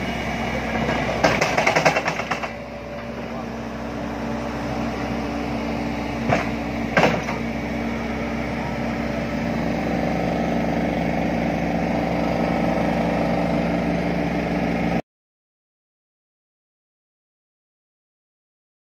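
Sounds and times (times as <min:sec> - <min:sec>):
excavator engine and hydraulics: 0:00.0 - 0:15.0.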